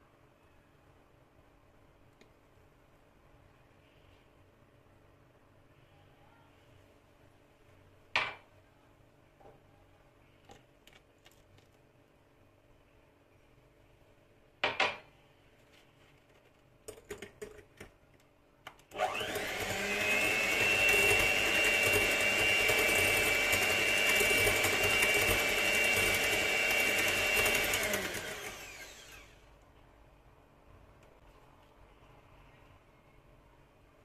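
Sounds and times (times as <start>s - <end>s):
electric hand mixer whine: 18.9s - 29.4s.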